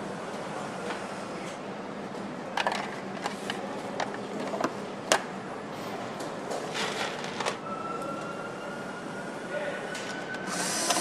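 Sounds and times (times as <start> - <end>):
factory hum: 0.0 - 11.0
clicks and knocks of tools: 2.6 - 5.2.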